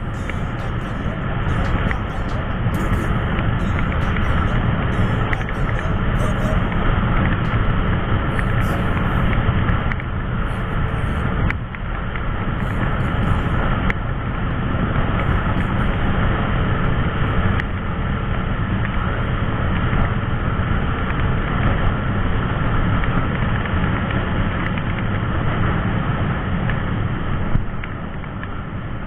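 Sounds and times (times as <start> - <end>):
scooter engine cruising: 0.0 - 21.4.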